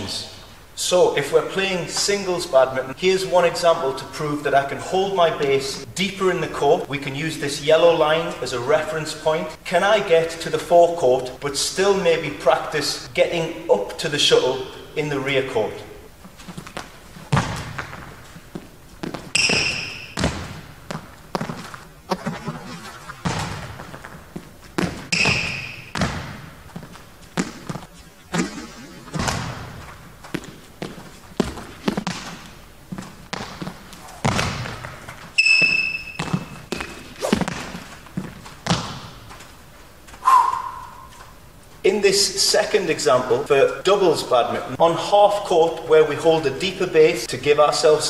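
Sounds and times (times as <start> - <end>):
footsteps on sports hall floor: 16.2 - 40.3
rubber sole squeak: 19.3 - 20.2, 25.1 - 26.0, 35.4 - 37.4, 40.2 - 41.3
loud thud: 23.2 - 23.8, 27.4 - 29.8.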